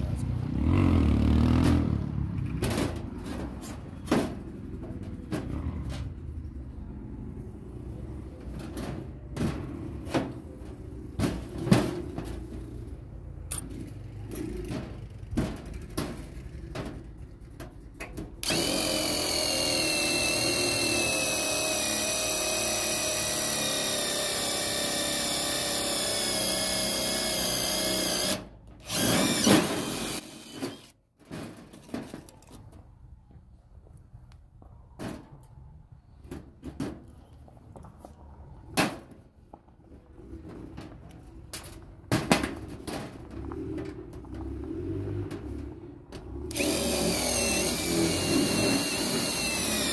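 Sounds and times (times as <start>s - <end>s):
power tool running: 18.4s - 30.9s, 46.5s - 49.9s.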